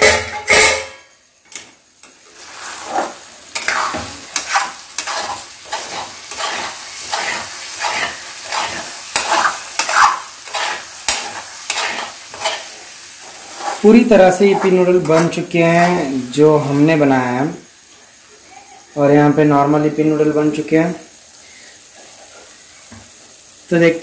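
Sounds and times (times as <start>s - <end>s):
metal spoon scraping metal pan: 0.0s - 1.1s, 2.6s - 17.0s.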